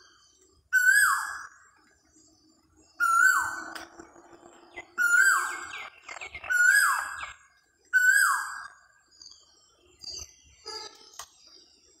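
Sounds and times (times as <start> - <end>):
bird whistled calls: 0.8 - 1.5.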